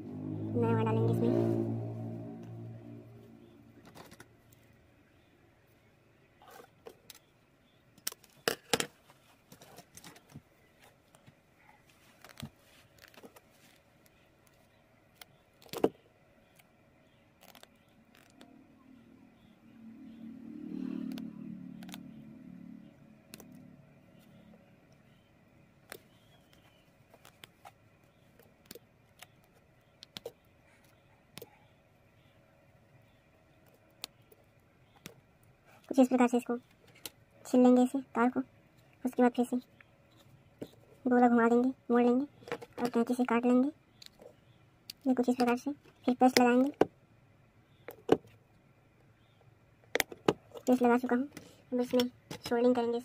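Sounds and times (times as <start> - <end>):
low rumble: 0.0 - 3.8
faint steady hum: 0.0 - 53.0.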